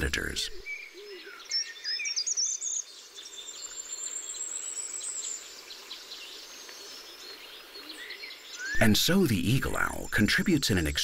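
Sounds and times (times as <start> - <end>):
small birds chirping: 0.0 - 11.0
faint steady hiss: 2.6 - 11.0.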